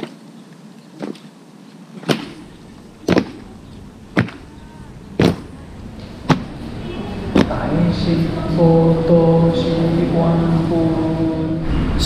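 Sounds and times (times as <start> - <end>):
boots stamping on stone: 1.0 - 1.3, 2.0 - 3.4, 4.2 - 4.5, 5.2 - 5.5.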